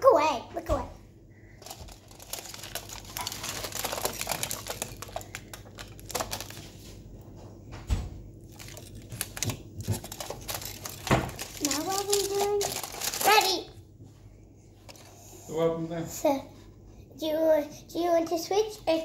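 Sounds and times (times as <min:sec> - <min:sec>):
aluminium foil crinkling: 0:01.6 - 0:07.0, 0:08.4 - 0:13.7.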